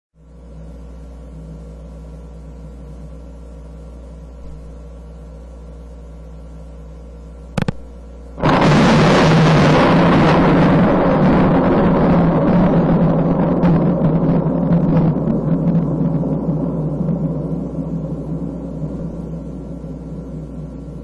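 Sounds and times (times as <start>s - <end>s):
low electrical hum: 0.2s - 21.0s
loud dense noise: 7.6s - 21.0s.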